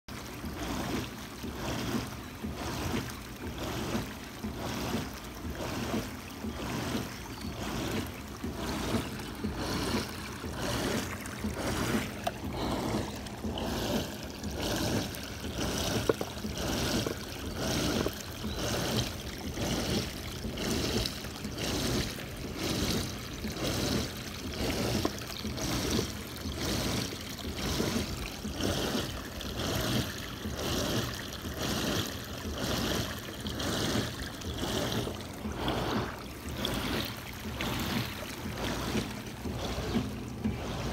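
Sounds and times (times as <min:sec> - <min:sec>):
spa pump surging: 0:00.0 - 0:40.9
water churning and splashing: 0:00.0 - 0:40.9.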